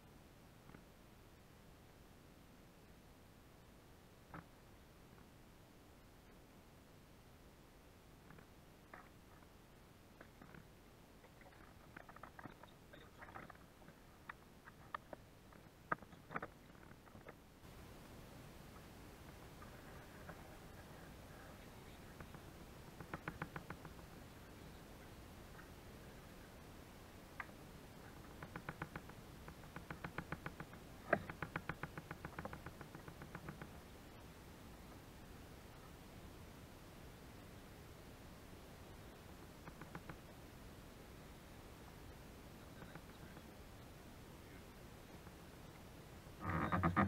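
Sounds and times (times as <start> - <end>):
rapid sharp clicks: 23.0 - 24.1, 28.2 - 33.7.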